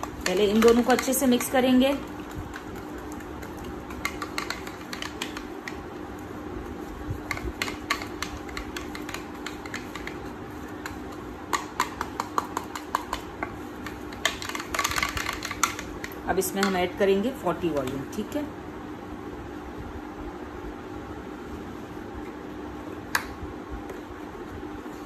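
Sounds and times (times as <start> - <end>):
brush clicking in plastic bowl: 0.0 - 6.2, 7.1 - 17.0.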